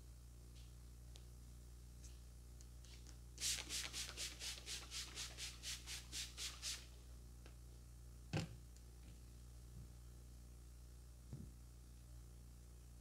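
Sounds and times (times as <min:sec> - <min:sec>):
short hissing strokes: 0:03.4 - 0:06.9.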